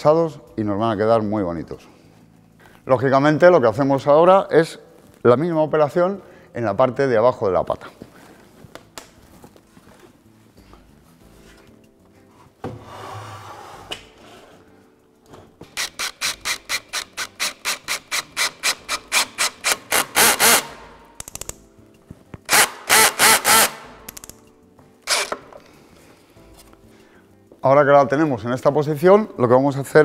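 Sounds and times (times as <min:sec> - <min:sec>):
table frame scraping floor: 0:12.4 - 0:15.6
cordless drill driving screw: 0:15.8 - 0:20.8, 0:22.5 - 0:23.9, 0:25.1 - 0:25.4.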